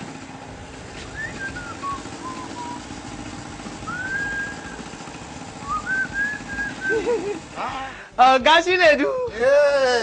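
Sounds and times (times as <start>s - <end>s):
portable generator engine humming: 0.0s - 10.0s
high whistled notes: 1.1s - 2.9s, 3.8s - 4.9s, 5.6s - 7.0s.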